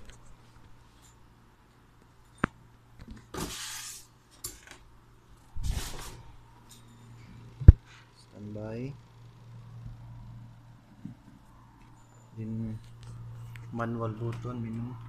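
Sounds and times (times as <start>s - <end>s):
low hum: 5.0s - 15.0s
rustling scraping noises: 5.6s - 7.2s.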